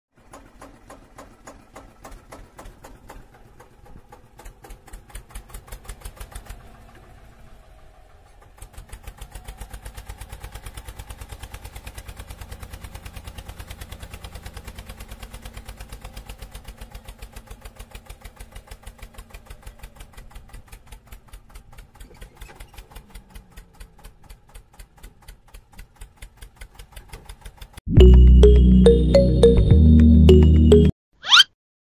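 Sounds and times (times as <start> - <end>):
tractor engine idling: 0.2 - 29.2.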